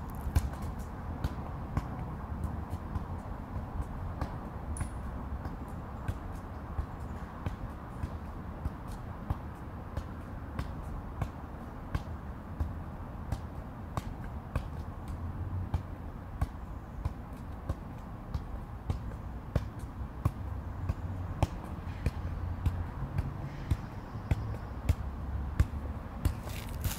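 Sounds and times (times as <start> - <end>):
ball thumping against foot: 0.0 - 2.0, 25.6 - 26.9.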